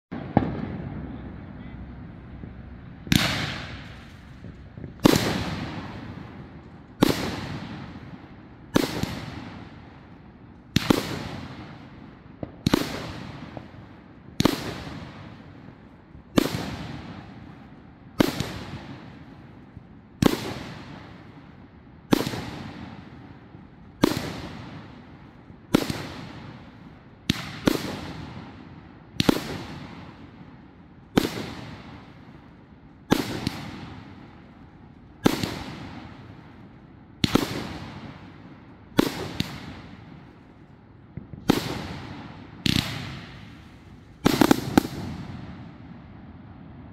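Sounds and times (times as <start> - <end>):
firework cake bangs: 3.1 - 6.3.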